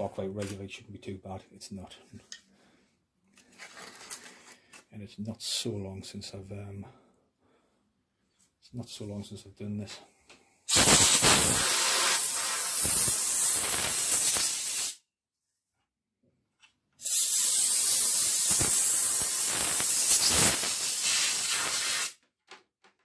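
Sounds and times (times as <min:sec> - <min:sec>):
compressed air hissing: 0:10.7 - 0:15.0, 0:17.0 - 0:22.2.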